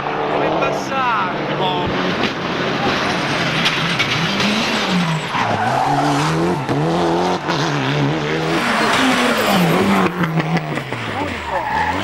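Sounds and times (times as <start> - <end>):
rally car engine revving: 0.0 - 12.0
tyre squeal: 8.4 - 12.0.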